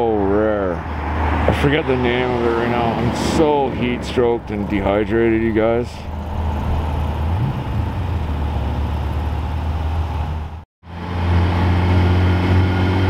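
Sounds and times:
car engine running at low revs: 3.7 - 13.0.

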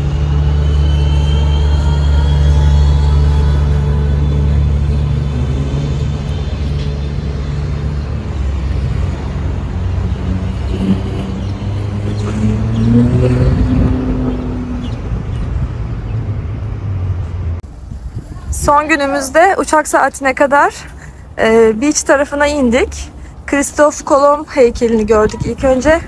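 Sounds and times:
engine revving up: 0.0 - 17.6
vehicle engines humming: 0.0 - 26.0.

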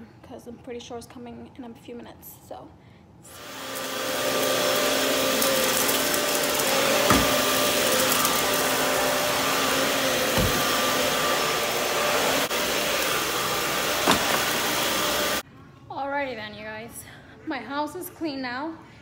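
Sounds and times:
vacuum cleaner running: 3.3 - 15.4
low thumps: 10.1 - 11.8.

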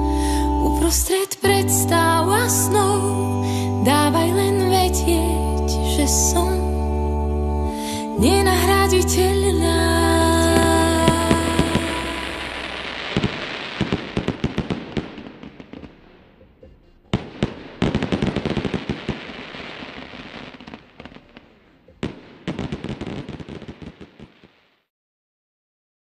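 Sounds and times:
fireworks crackling: 10.5 - 24.8
sharp firework bursts: 10.6 - 24.8.

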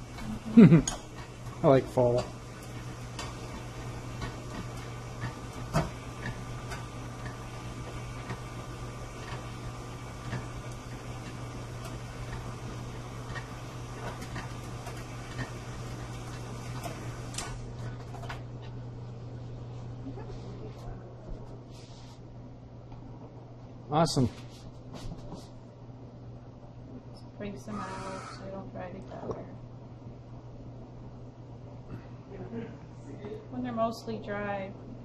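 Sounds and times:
stand mixer motor hum: 0.0 - 18.0.

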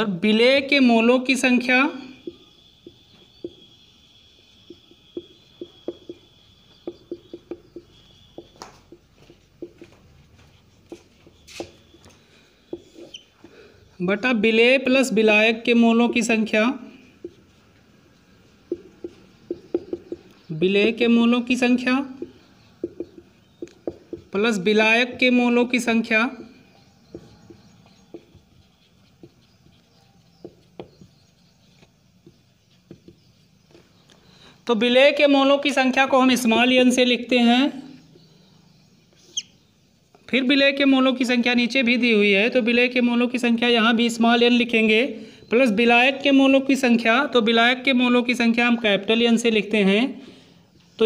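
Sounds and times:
marker scratchy stroke: 2.1 - 13.4, 17.0 - 20.5, 21.6 - 24.6, 27.1 - 33.7
marker tapping on whiteboard: 2.2 - 3.8, 4.5 - 13.2, 17.2 - 17.6, 18.2 - 21.0, 21.9 - 25.4, 27.0 - 33.4.

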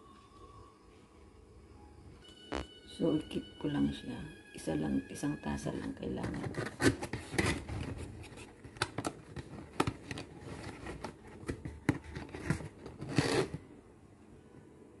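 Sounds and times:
packaging rustling: 6.0 - 13.6.

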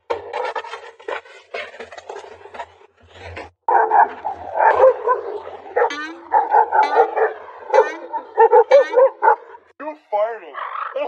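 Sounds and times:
dogs barking loudly: 3.7 - 9.7.

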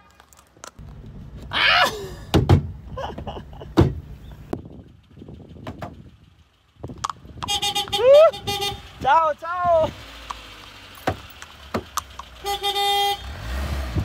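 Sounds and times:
car door thumps: 2.3 - 4.0.

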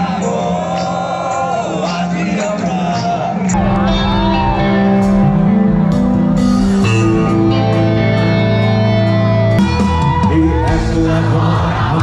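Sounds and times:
live band music: 3.5 - 12.0.

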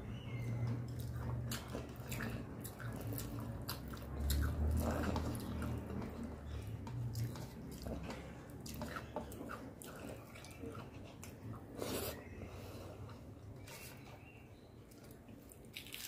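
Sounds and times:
chewing with wet mouth clicks: 0.7 - 11.6.

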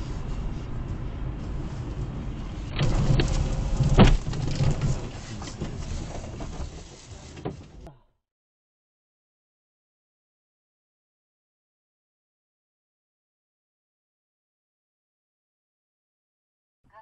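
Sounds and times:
car engine and road rumble: 0.0 - 8.0
car sliding into snow: 1.4 - 7.8
car thumping into snowbank: 2.8 - 5.0.

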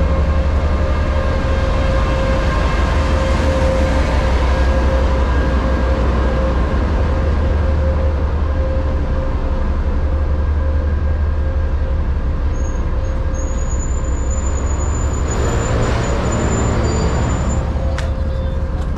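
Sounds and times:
train rumbling past: 0.0 - 18.9
train brake squeal: 12.5 - 18.7.

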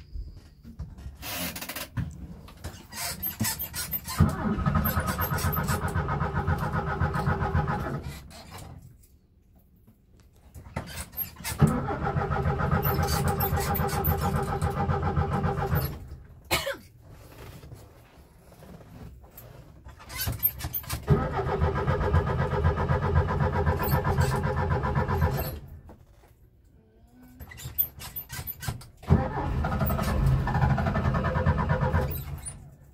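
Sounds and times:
starter motor cranking engine: 3.8 - 8.3, 11.4 - 16.2, 20.8 - 25.7, 29.0 - 32.7.

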